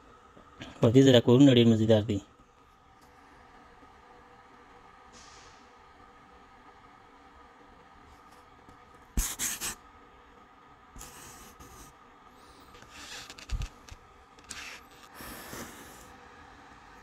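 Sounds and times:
phone handling rubbing and scraping: 0:12.7 - 0:15.1.

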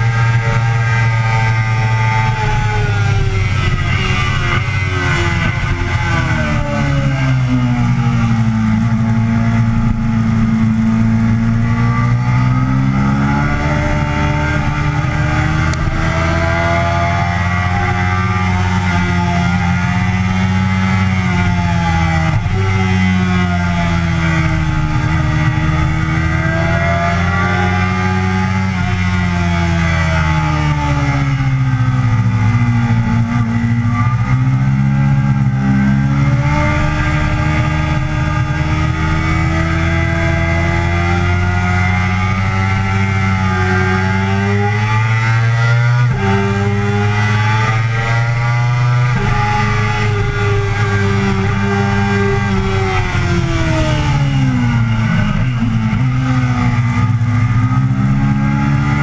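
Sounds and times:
motorcycle engine revving: 0:00.0 - 0:59.0
wind rush: 0:00.7 - 0:12.2.

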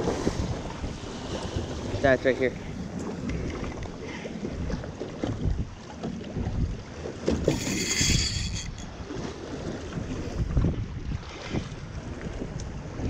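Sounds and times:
water slapping boat hull: 0:00.0 - 0:13.0
wind buffeting microphone: 0:00.0 - 0:13.0
fishing reel whirring: 0:07.4 - 0:09.1.

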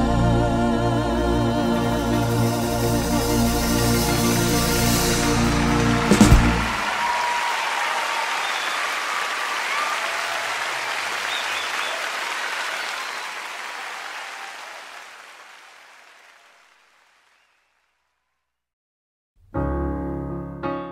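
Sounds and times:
audience applause: 0:05.2 - 0:17.7.

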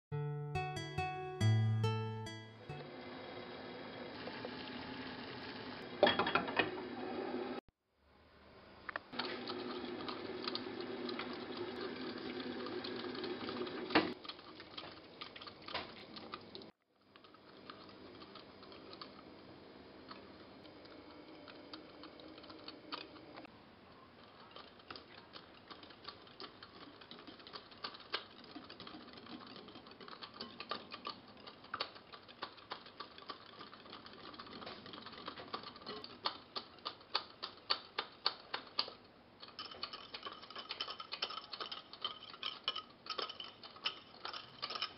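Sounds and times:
kitchen noise: 0:06.0 - 0:06.8, 0:39.4 - 0:44.9.

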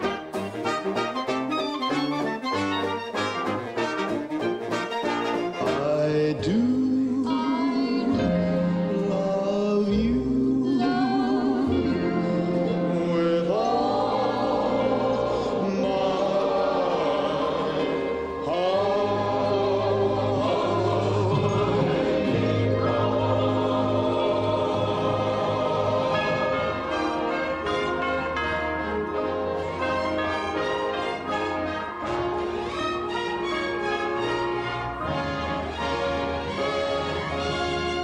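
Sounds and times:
steady musical accompaniment: 0:00.0 - 0:38.0
singing voices with vibrato: 0:05.8 - 0:26.9.

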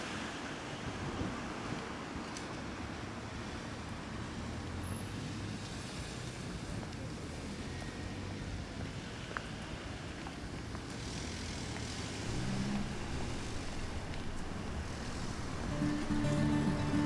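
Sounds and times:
traffic rumble: 0:00.0 - 0:17.0
passing car hiss: 0:10.9 - 0:17.0
music: 0:15.6 - 0:17.0.

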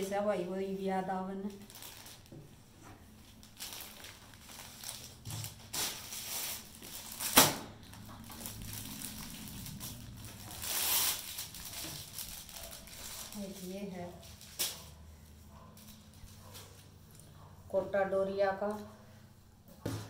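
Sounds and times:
fabric rustling and crinkling: 0:01.6 - 0:15.0.

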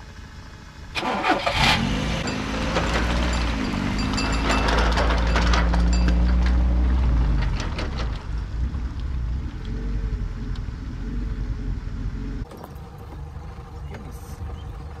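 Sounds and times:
car engine pulling away: 0:00.9 - 0:15.0
trailer clattering on gravel: 0:02.3 - 0:08.5.

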